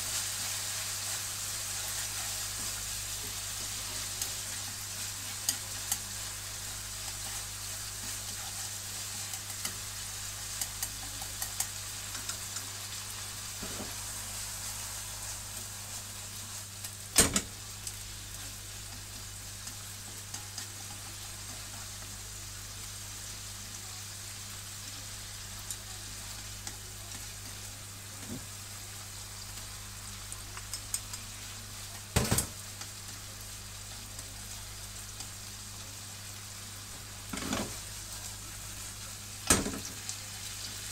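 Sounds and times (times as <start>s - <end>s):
chicken skin sizzling: 0.0s - 40.9s
chopsticks clicking against pan: 5.4s - 6.1s, 9.2s - 9.8s, 10.4s - 12.7s, 30.5s - 31.3s.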